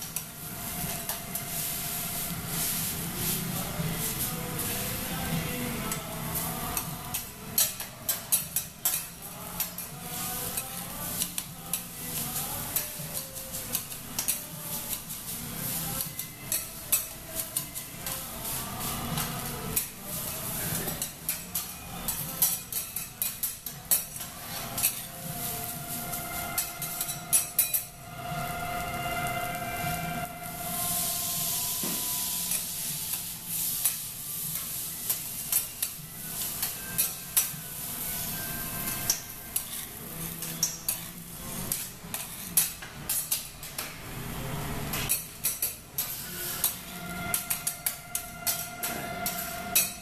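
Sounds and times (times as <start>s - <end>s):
food sizzling on hot plate: 0.0s - 50.0s
metal spatulas clacking on griddle: 6.8s - 9.9s, 16.0s - 17.9s.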